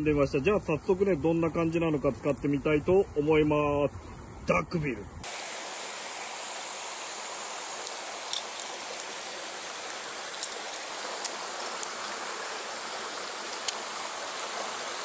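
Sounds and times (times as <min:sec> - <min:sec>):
stream rushing over rocks: 0:05.2 - 0:15.0.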